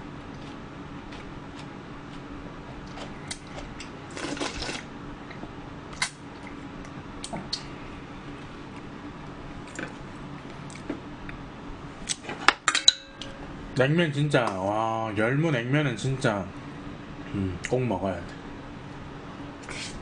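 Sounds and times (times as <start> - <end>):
slurping broth: 4.1 - 4.9.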